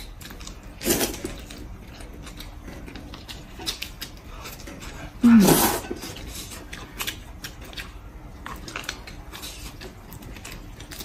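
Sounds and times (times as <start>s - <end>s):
soft chewing: 0.0s - 11.0s
slurping noodles: 5.2s - 6.2s.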